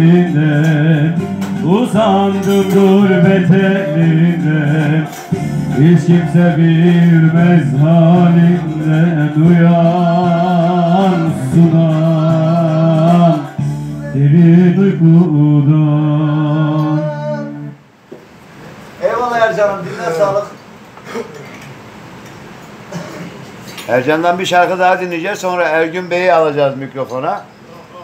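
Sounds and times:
man singing folk song: 0.0s - 17.8s.

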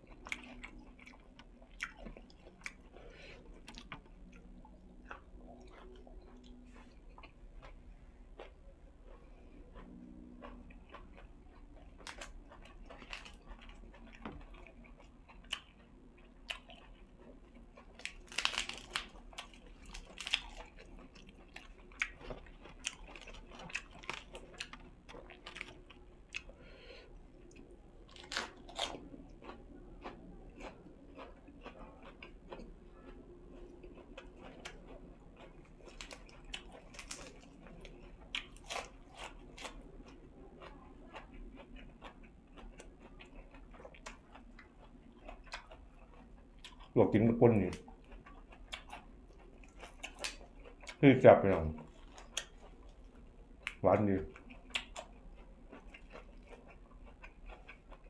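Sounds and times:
person chewing crunchy food: 0.0s - 58.0s.

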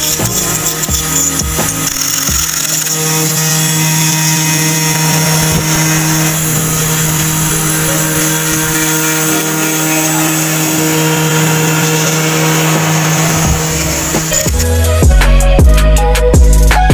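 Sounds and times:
router spindle whining: 0.0s - 16.9s.

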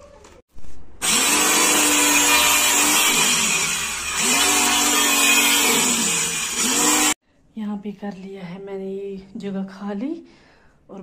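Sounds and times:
electric saw cutting plywood: 1.0s - 7.2s.

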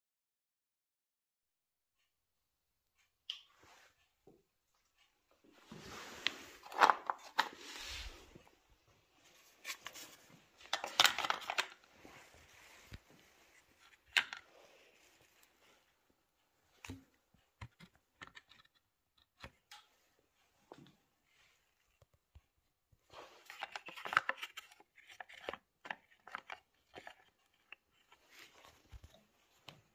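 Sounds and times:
plastic parts scraping and rustling: 5.0s - 15.9s, 17.6s - 19.9s, 23.1s - 29.9s.

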